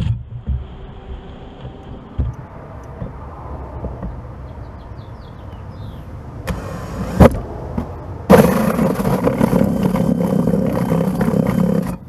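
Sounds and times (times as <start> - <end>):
power drill cutting plastic: 8.3 - 12.0.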